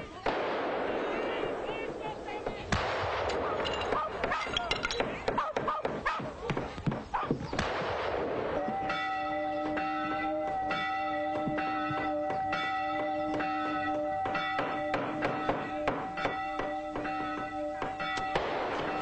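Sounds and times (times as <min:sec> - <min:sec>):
church bells ringing: 0:08.7 - 0:19.0
knocks: 0:14.2 - 0:19.0.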